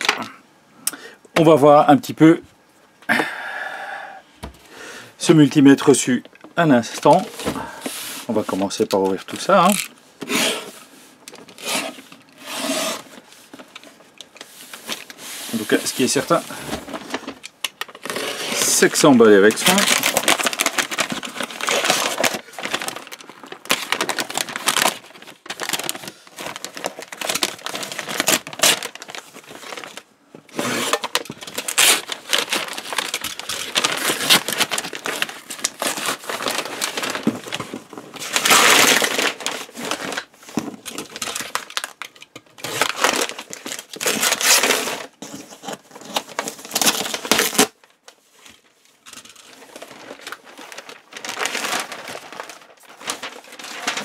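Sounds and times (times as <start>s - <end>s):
paper tearing and crumpling: 9.6s - 10.8s, 11.4s - 13.3s, 14.4s - 40.3s, 40.9s - 47.8s, 49.3s - 54.0s.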